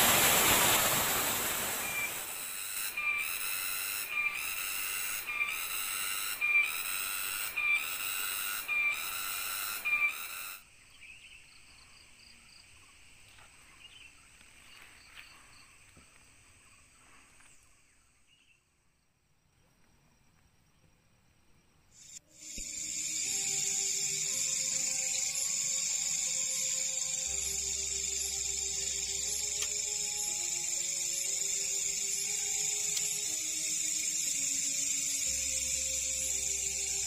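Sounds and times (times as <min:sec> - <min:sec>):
forest stream rushing: 0:00.0 - 0:02.4
cicada chorus shrill pulsing whine: 0:00.0 - 0:12.9, 0:22.0 - 0:37.0
faint thin insect sound: 0:00.0 - 0:37.0.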